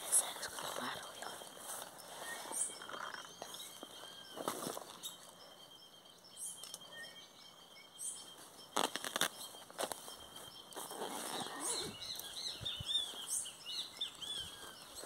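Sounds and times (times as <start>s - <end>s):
birds chirping and whistling: 0.0s - 15.0s
rustling: 8.4s - 12.4s.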